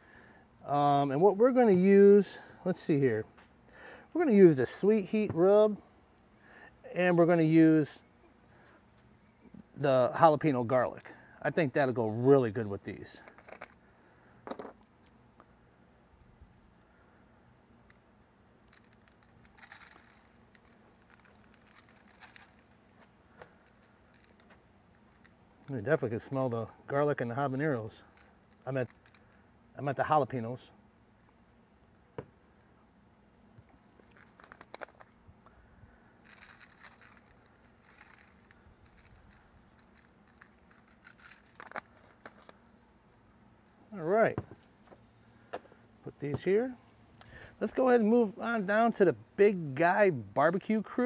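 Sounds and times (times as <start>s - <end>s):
shaker bottle rattling: 18.6s - 25.7s, 27.4s - 29.4s, 36.2s - 42.5s.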